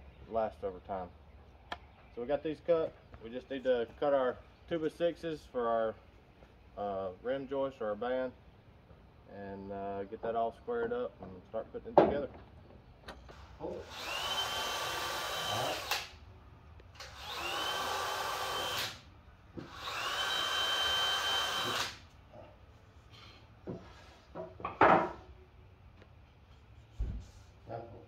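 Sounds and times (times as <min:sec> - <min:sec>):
cordless drill driving screws: 0:13.8 - 0:16.2, 0:17.0 - 0:19.0, 0:19.6 - 0:22.0.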